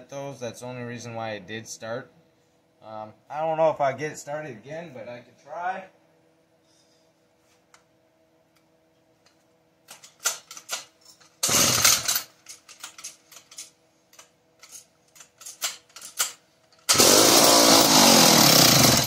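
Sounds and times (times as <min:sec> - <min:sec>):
chainsaw starter cord pull: 0:11.4 - 0:12.3, 0:16.9 - 0:19.0.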